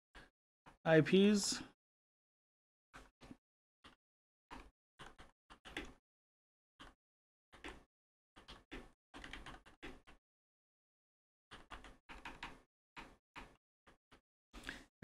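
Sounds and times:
computer keyboard typing: 4.5 - 6.0, 6.8 - 10.2, 11.5 - 13.6.

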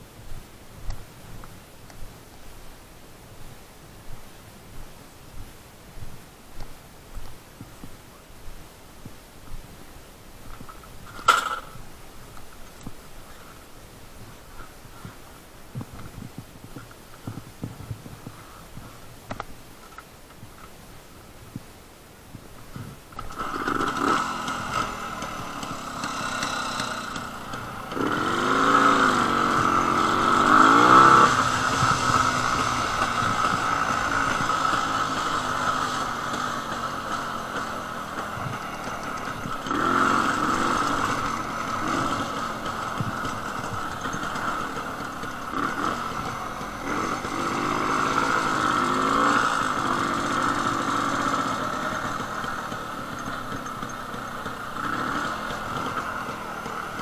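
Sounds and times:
motorcycle engine revving: 23.2 - 57.0.

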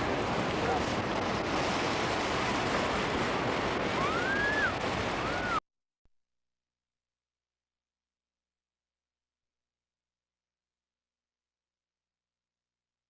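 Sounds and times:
waves washing onto beach: 0.0 - 5.6
wind noise on microphone: 0.0 - 5.6.

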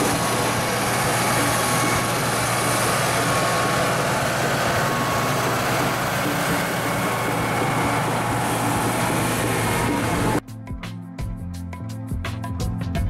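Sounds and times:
heavy engine idling: 0.0 - 10.4.

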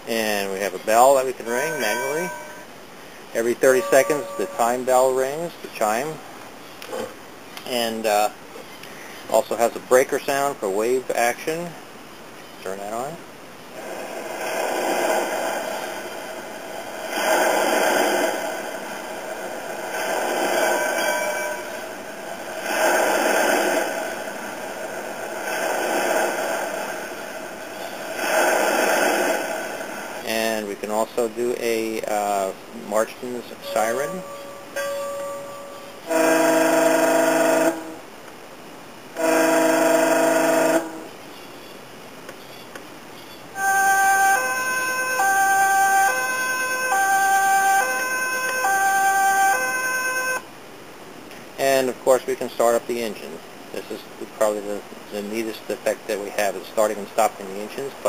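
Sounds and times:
two-tone siren: 3.7 - 4.8, 33.6 - 38.0, 39.2 - 41.1, 43.6 - 50.5
breaking waves sound effect: 13.8 - 30.2.

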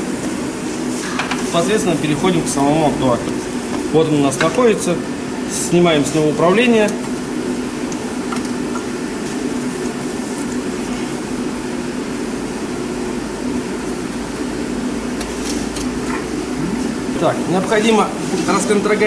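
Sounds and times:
workshop mechanical hum: 0.0 - 19.0.

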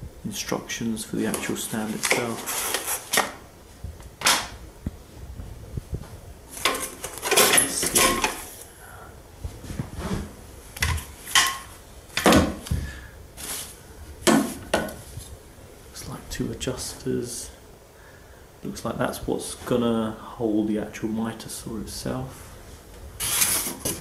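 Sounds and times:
metal parts clinking and scraping: 6.6 - 8.5
rustling plastic wrap and polystyrene: 13.4 - 13.8.

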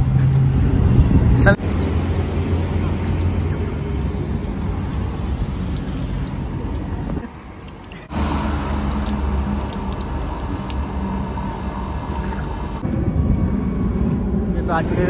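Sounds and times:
wind rumble on microphone: 0.0 - 7.2
outdoor street noise: 0.0 - 15.0
tap water running into hands: 1.7 - 4.8, 7.6 - 12.8.

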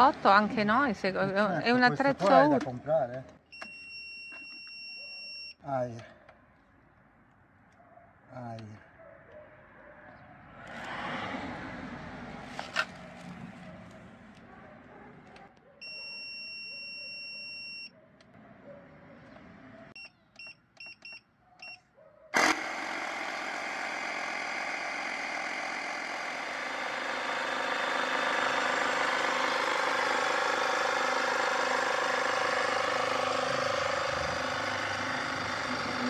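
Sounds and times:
short beeps: 3.5 - 5.6, 15.8 - 17.9
air compressor running: 22.4 - 36.0.

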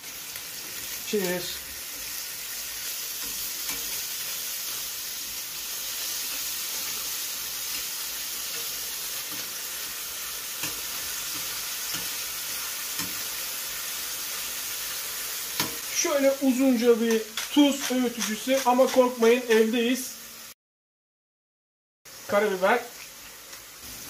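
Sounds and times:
sausage sizzling in hot oil: 0.0 - 20.6, 22.1 - 24.0
metal tongs clicking on pan: 3.2 - 4.0, 10.6 - 12.2, 13.0 - 13.3.

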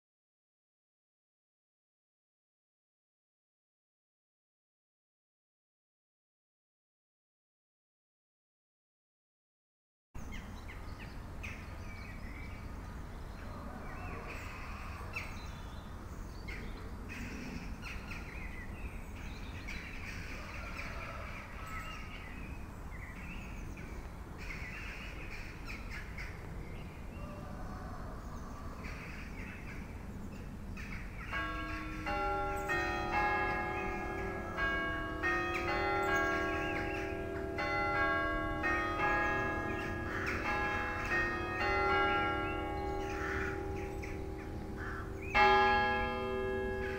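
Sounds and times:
church bells ringing: 31.3 - 46.9.

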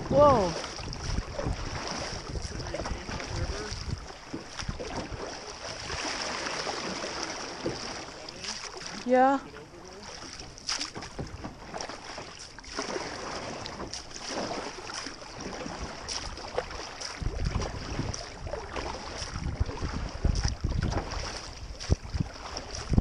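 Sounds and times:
wind buffeting microphone: 0.0 - 8.0, 15.4 - 23.0
paddle strokes splashing: 0.0 - 23.0
water washing along hull: 0.0 - 23.0.

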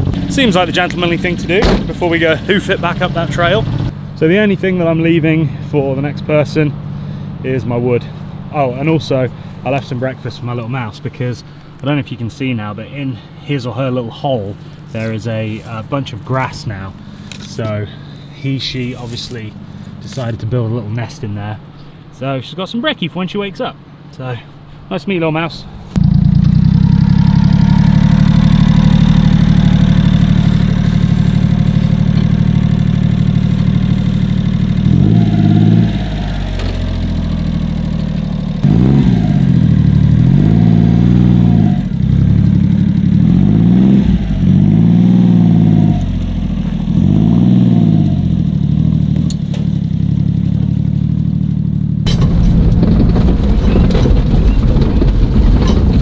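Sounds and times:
truck rattling on dirt track: 0.0 - 3.9, 26.0 - 39.4, 52.0 - 56.0
small truck engine revving: 25.9 - 56.0.

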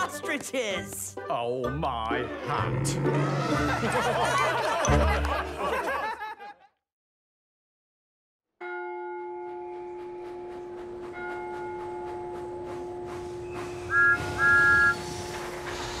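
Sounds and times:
steam locomotive whistle: 12.8 - 16.0.

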